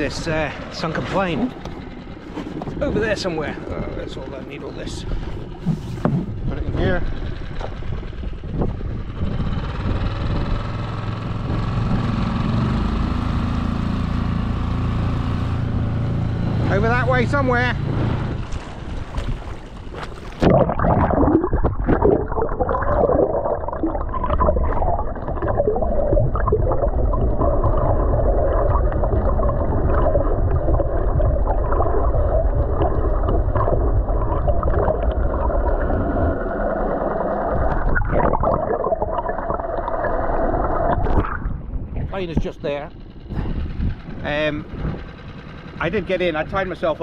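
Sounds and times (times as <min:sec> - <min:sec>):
muffled underwater water rushing: 0:00.0 - 0:10.0, 0:16.4 - 0:45.7
steady low hum: 0:14.0 - 0:47.0
splashing water surface: 0:18.0 - 0:41.6.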